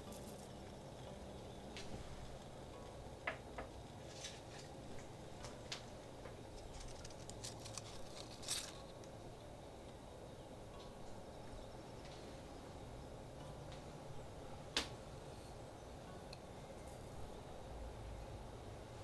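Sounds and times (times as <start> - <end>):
low steady hum: 0.0 - 19.0
dry leaves rustling: 6.6 - 9.0.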